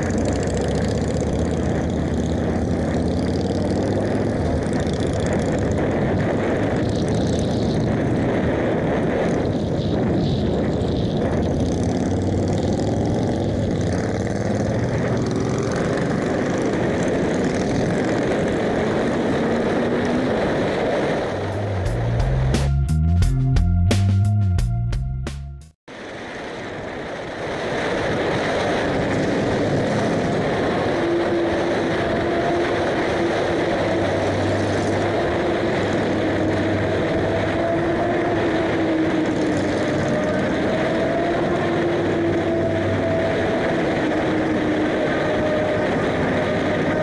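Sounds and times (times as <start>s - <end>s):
wind rush: 0.0s - 24.8s, 25.9s - 47.0s
motorcycle engine running: 0.0s - 25.4s.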